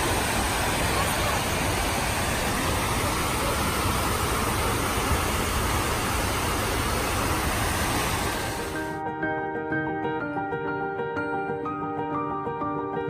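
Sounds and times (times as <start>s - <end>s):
waterfall rushing: 0.0s - 9.0s.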